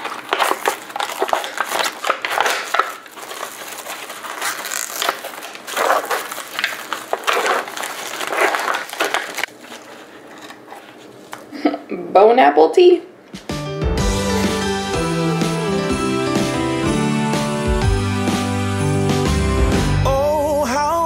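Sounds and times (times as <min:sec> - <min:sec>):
plastic film crinkling: 0:00.0 - 0:11.5.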